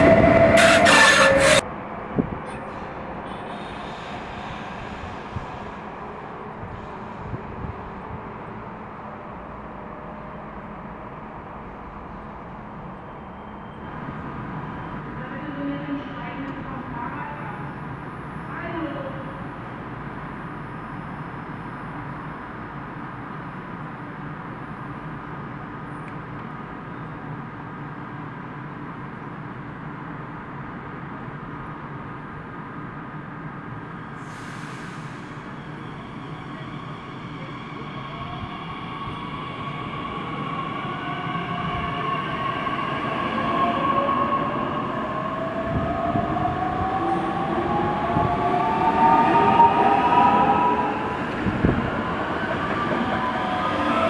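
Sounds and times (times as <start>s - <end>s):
train low rumble: 0.0s - 34.3s.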